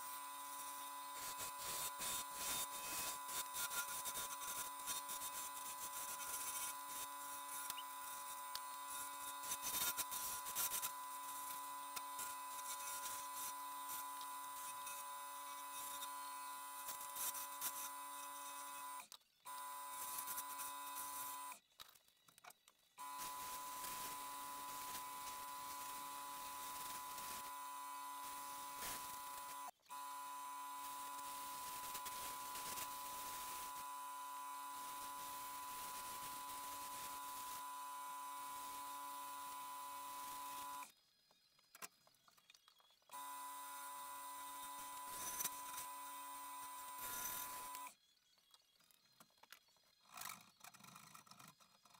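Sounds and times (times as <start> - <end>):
sandpaper hissing on wood: 0.0 - 15.0, 28.1 - 29.7, 30.8 - 33.8
wood lathe motor whine: 0.0 - 21.6, 23.0 - 40.9, 43.1 - 47.9.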